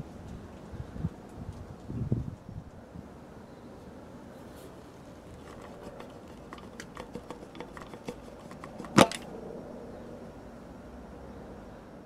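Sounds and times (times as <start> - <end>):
sharp loud click: 8.6 - 9.3.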